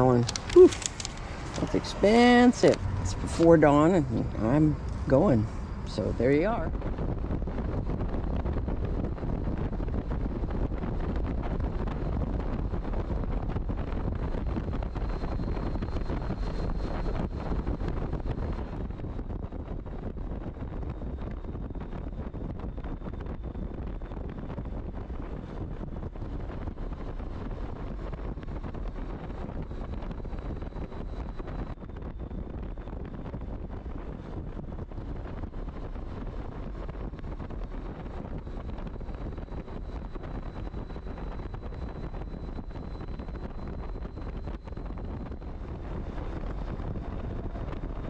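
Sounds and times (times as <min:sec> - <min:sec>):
road noise: 0:00.0 - 0:09.1
wind rushing over microphone: 0:00.0 - 0:48.0.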